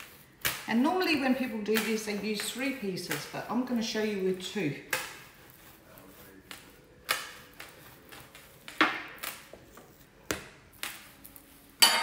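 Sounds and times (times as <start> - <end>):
hands patting dough on benchtop: 0.0 - 3.7, 6.4 - 11.2.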